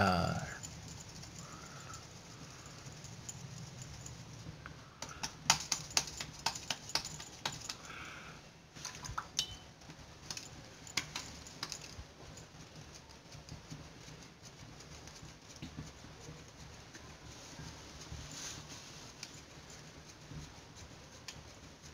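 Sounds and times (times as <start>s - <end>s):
hands slapping dough: 5.0s - 8.0s, 10.9s - 11.8s.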